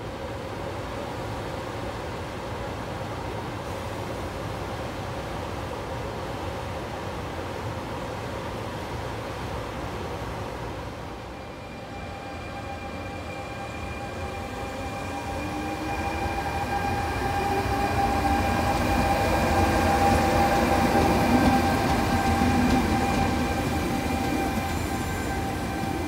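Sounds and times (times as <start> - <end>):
rail and running-gear rumble: 0.0 - 26.0
electric locomotive whine: 10.7 - 26.0.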